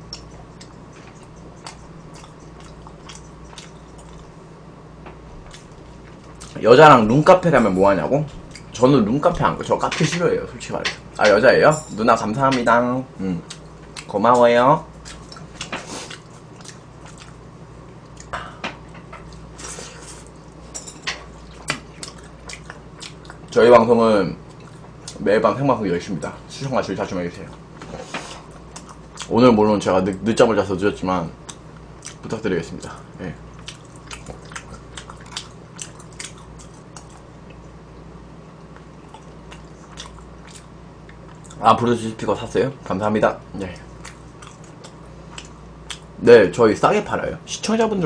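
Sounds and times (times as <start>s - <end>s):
wet chewing sounds: 0.0s - 4.4s, 5.4s - 6.6s, 13.4s - 14.2s, 14.9s - 18.4s, 19.1s - 23.6s, 24.4s - 25.2s, 27.4s - 29.4s, 31.4s - 41.6s, 43.7s - 46.2s
faint low hum: 0.0s - 48.0s
wet mouth clicks: 0.1s - 4.2s.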